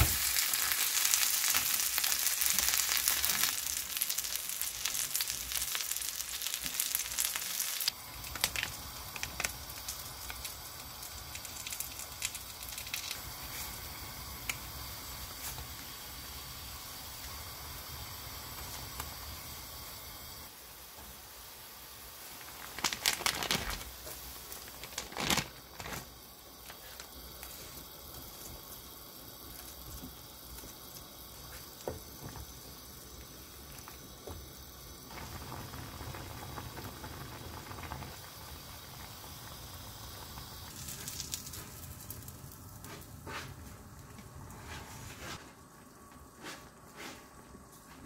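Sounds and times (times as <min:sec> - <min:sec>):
broth bubbling in pot: 0:00.0 - 0:47.8.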